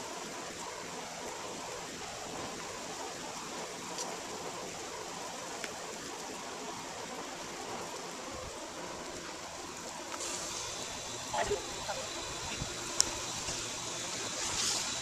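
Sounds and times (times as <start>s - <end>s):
rain hissing: 0.0s - 15.0s
faint tick: 5.6s - 5.8s.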